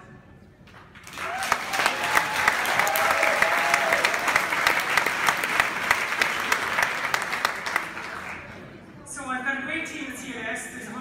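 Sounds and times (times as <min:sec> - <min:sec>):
audience applauding: 0:00.9 - 0:08.7.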